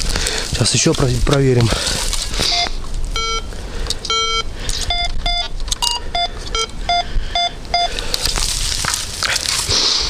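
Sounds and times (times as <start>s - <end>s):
metal detector beeps: 2.4s - 8.0s.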